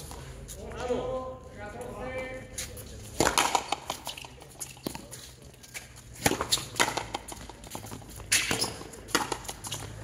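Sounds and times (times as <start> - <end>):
ball smacking rackets and wall: 2.6 - 10.0.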